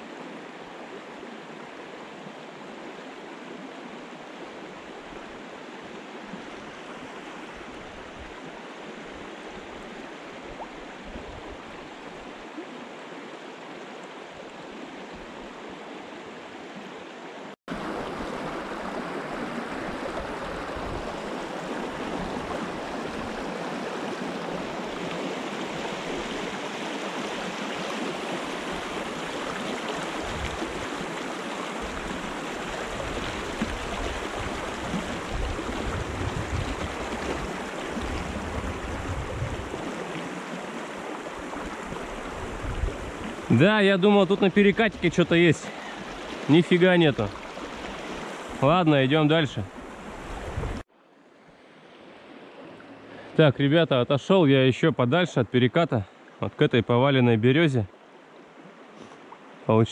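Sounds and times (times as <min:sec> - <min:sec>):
river rushing over riffle: 0:17.7 - 0:50.8.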